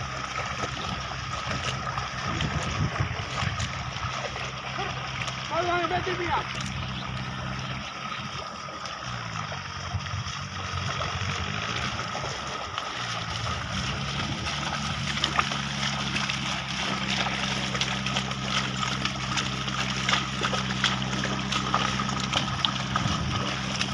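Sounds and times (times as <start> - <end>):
hooves splashing through mud: 0.0 - 23.9
low engine hum: 0.0 - 23.9
wooden plough splashing in mud: 0.0 - 23.9.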